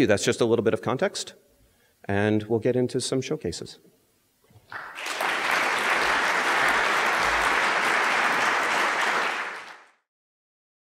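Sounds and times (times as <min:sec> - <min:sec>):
audience applauding: 0:04.7 - 0:10.0.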